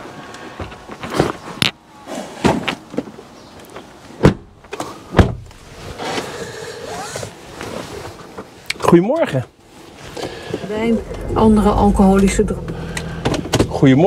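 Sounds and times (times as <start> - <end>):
heavy thumps: 10.8 - 13.9.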